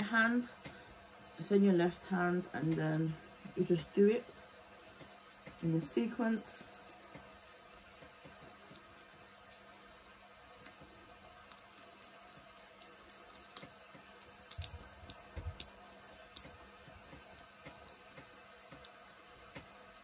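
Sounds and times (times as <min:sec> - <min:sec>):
nail clicks and taps: 0:11.5 - 0:19.7.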